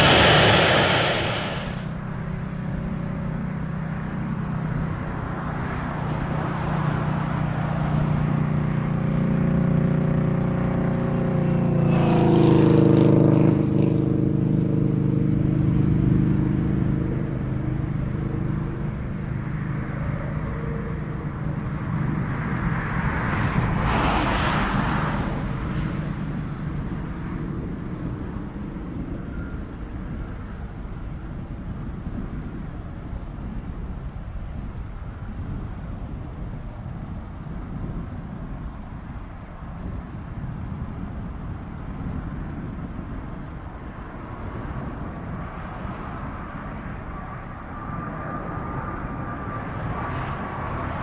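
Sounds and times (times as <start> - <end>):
vehicle passing by: 0.0 - 1.9, 5.1 - 28.7
steady low drone: 0.0 - 2.0.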